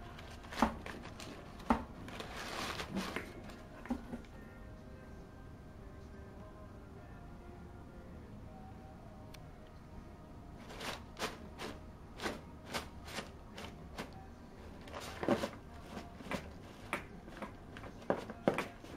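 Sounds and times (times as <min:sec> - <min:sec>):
packing paper crinkling: 0:00.0 - 0:03.6.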